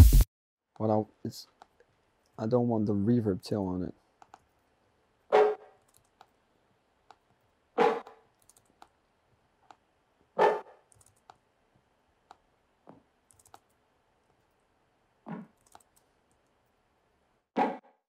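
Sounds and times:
soft clicks: 4.2s - 4.6s, 10.9s - 11.4s, 13.3s - 14.5s, 15.6s - 16.6s.

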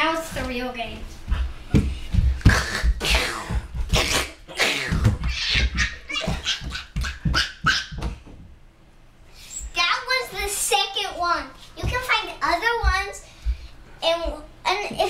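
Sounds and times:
boy making mouth sound effects: 2.4s - 7.9s.

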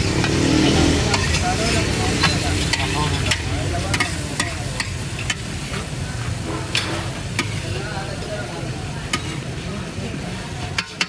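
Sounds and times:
liver sizzling in a pan: 0.0s - 11.0s
metal spatula scraping: 0.2s - 5.5s.

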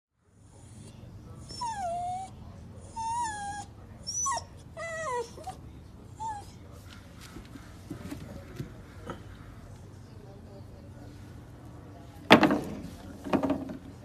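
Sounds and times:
dog whining: 0.5s - 6.7s.

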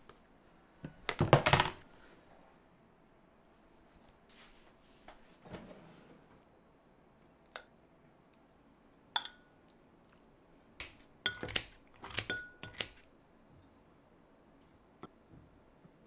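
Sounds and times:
utensils clinking on glass bowl: 11.3s - 13.0s.

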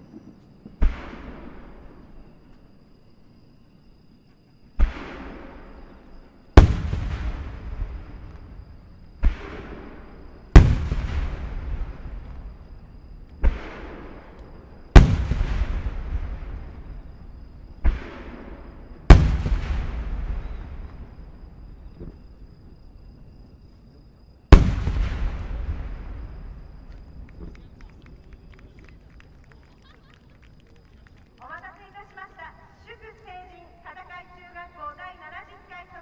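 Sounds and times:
firework bangs: 0.7s - 2.2s, 4.8s - 22.4s, 24.5s - 31.1s.

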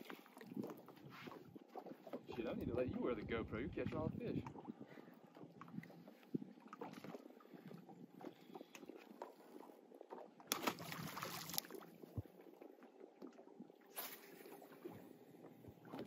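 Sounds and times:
waves lapping against boat hull: 0.0s - 16.0s
fish splashing: 4.6s - 15.2s.

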